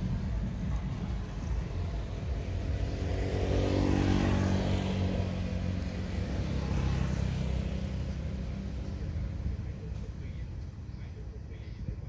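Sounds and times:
steady low rumble: 0:00.0 - 0:03.6
vehicle passing: 0:00.0 - 0:11.3.

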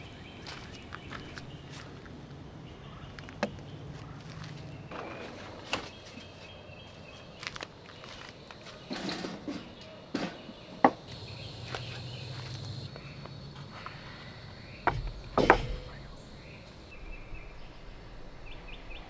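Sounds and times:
steady low hum: 0:04.7 - 0:19.0
objects knocking on wooden table: 0:14.8 - 0:15.9.

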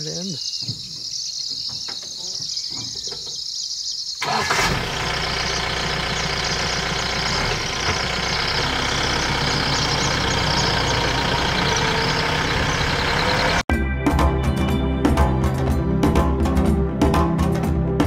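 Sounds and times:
vehicle engine low rumble: 0:04.4 - 0:13.7.

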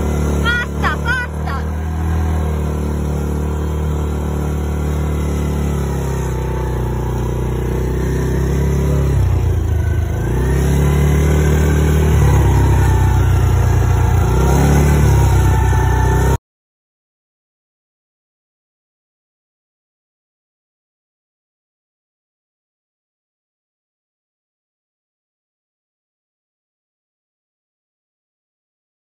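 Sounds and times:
quad bike engine running: 0:00.0 - 0:16.4.

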